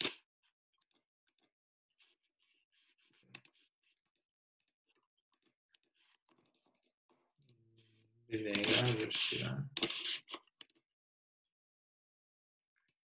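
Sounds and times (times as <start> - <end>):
computer mouse clicks: 8.5 - 9.0.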